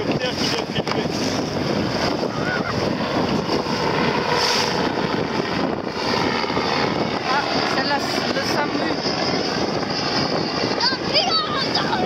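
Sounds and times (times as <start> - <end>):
wind buffeting microphone: 0.0 - 12.0
water splashing along boat hull: 4.4 - 4.7.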